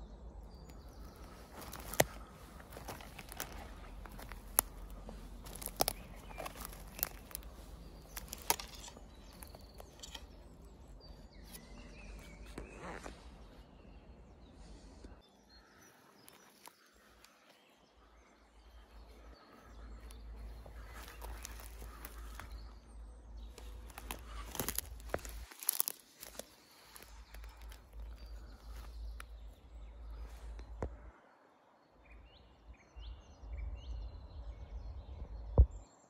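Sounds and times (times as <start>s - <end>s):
twigs snapping: 0.5s - 11.7s, 16.2s - 17.4s, 19.9s - 22.8s, 23.4s - 31.0s
footsteps crunching through twigs: 0.5s - 13.9s, 16.0s - 17.6s, 19.1s - 30.9s.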